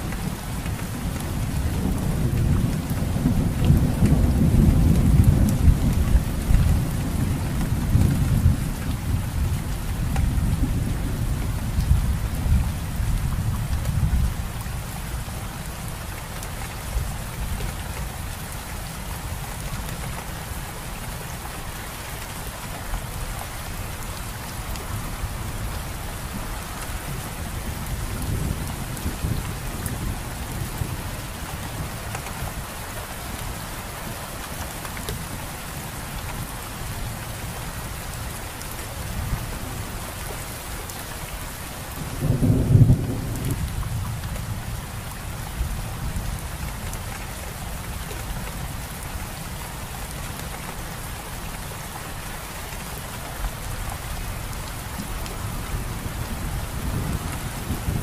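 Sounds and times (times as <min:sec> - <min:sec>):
steady rain: 0:00.0 - 0:58.0
low rumble of thunder: 0:00.2 - 0:16.0, 0:23.0 - 0:32.7, 0:41.9 - 0:49.1, 0:53.6 - 0:58.0.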